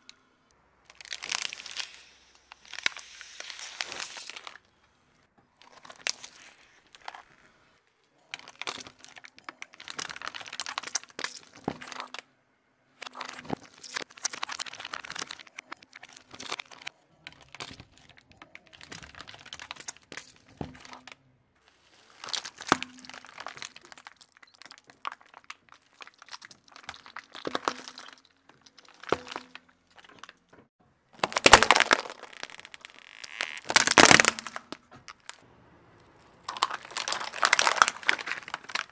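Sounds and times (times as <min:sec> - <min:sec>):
tyre crushing objects: 0:22.1 - 0:35.4.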